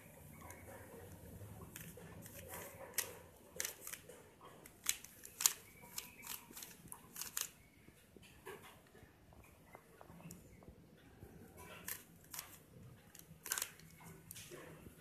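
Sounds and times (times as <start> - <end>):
puzzle cube clicking: 4.8 - 7.6, 11.9 - 13.9.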